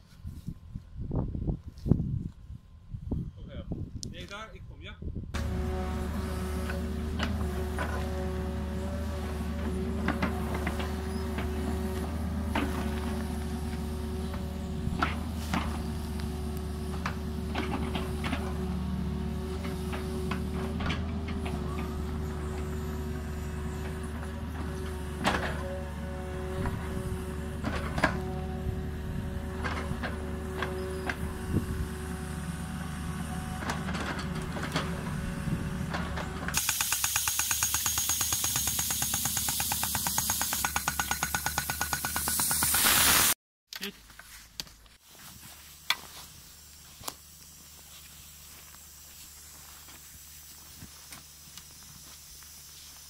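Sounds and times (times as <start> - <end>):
blade pushing soil: 5.4 - 40.6
earthmoving machine engine running: 5.4 - 42.7.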